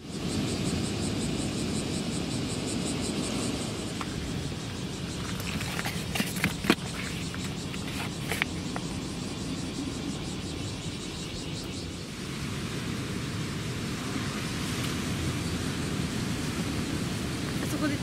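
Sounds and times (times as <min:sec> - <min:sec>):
outdoor background hiss: 0:00.0 - 0:18.0
clicks and knocks of gear moved: 0:05.2 - 0:08.6.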